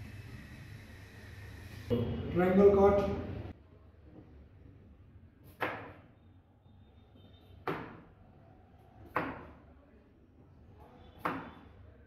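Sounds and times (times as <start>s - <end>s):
knife chopping on cutting board: 9.0s - 9.6s.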